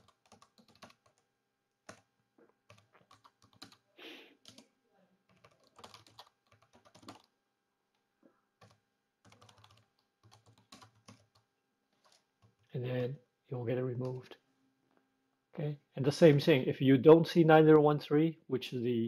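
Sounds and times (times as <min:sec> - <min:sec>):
keyboard typing: 0:00.0 - 0:04.6, 0:05.3 - 0:07.3, 0:08.6 - 0:13.1.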